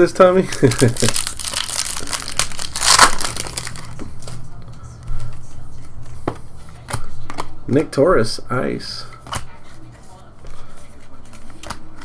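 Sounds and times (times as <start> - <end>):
foil wrapper crinkling: 0.4 - 4.4
cards rustling and flicking: 5.3 - 7.9, 9.0 - 12.0.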